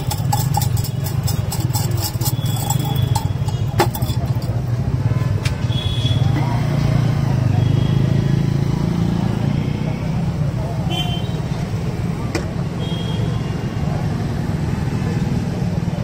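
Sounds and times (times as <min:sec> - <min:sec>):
sharp metal clink: 0:00.0 - 0:04.6
road traffic rumble: 0:00.0 - 0:16.0.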